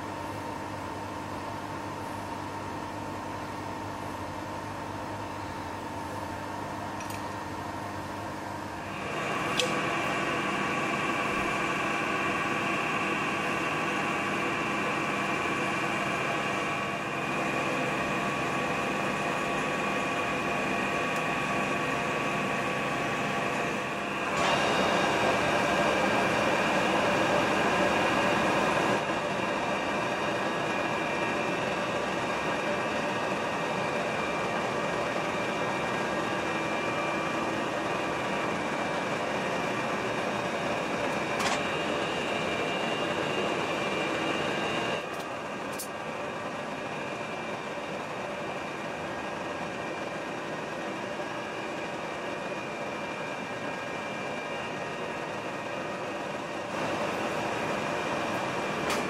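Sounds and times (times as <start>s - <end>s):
lathe running with geared whine: 0.0s - 59.0s
sharp click: 9.5s - 9.8s.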